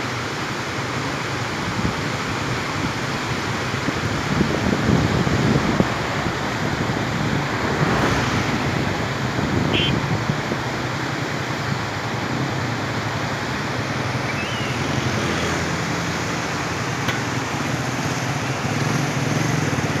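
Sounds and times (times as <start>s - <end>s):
river rapids rushing: 0.1s - 20.0s
wind on microphone: 3.6s - 10.6s.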